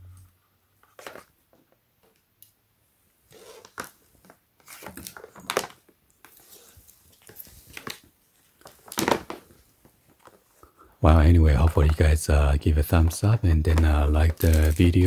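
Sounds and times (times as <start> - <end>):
rustling and crinkling light strip: 3.3 - 10.7, 13.2 - 15.0.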